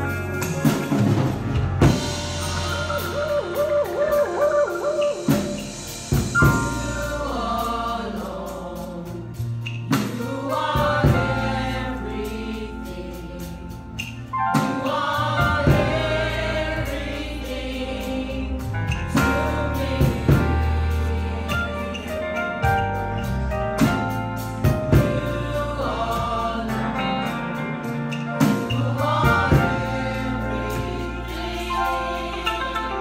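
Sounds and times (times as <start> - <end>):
bass line: 0.0 - 33.0
gospel choir of women singing: 0.0 - 33.0
sharp drum hit: 0.4 - 7.6.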